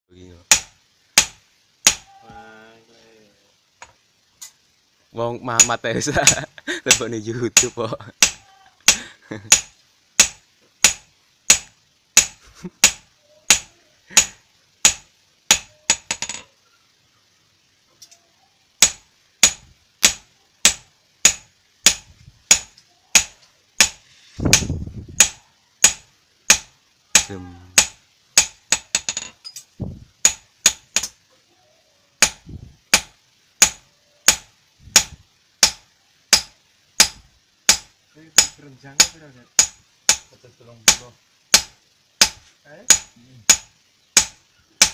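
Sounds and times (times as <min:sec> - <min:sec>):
hammer striking metal: 0:00.5 - 0:02.1, 0:05.6 - 0:16.4, 0:18.8 - 0:29.6, 0:30.2 - 0:31.2, 0:32.2 - 0:40.3, 0:40.9 - 0:44.9.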